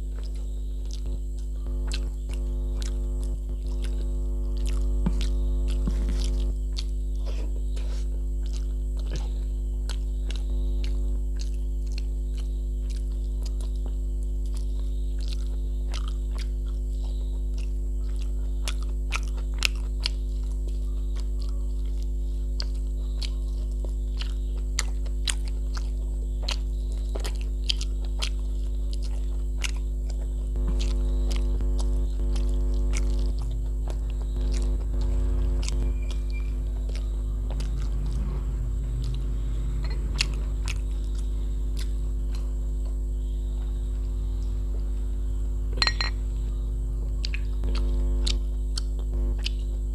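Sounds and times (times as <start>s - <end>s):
electrical mains hum: 0.0s - 49.9s
wet chewing and lip-smacking: 0.0s - 49.9s
sharp mouth clicks: 39.0s - 42.6s, 47.2s - 49.8s.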